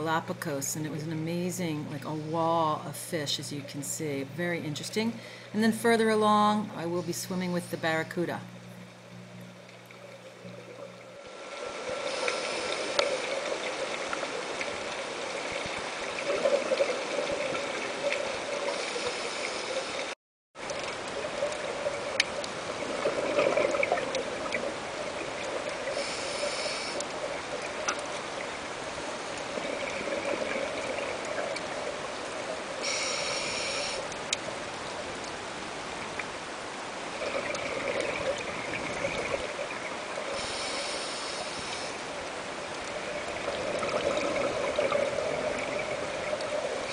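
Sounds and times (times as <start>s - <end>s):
steady watery hiss: 6.7s - 20.2s, 20.9s - 46.9s
exhaled bubbles gushing: 8.5s - 18.8s, 20.7s - 32.9s, 37.0s - 40.6s, 42.2s - 46.9s
scuba regulator breathing: 12.0s - 13.2s, 18.7s - 20.1s, 25.9s - 27.0s, 32.8s - 34.1s, 40.4s - 42.0s.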